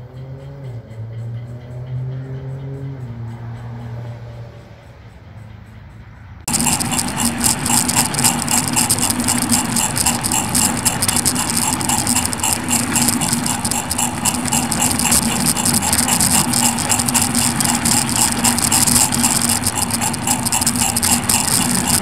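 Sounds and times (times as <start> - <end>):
electric motor and gear hum: 6.5 - 22.0
wheels clicking on track: 6.5 - 22.0.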